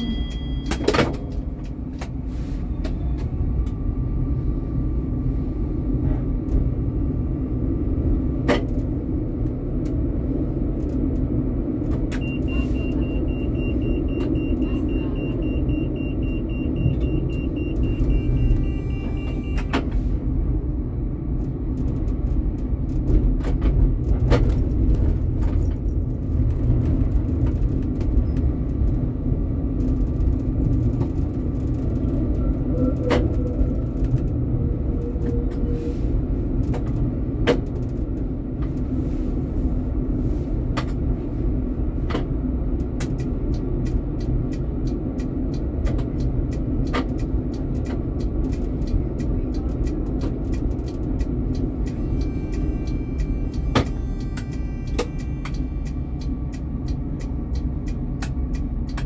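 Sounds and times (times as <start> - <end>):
tram rumbling: 0.0 - 59.0.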